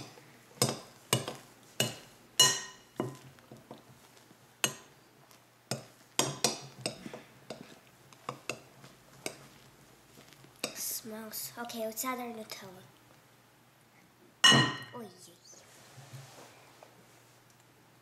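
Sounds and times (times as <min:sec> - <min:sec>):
metal spoon clinking glass bowl: 0:00.6 - 0:03.2.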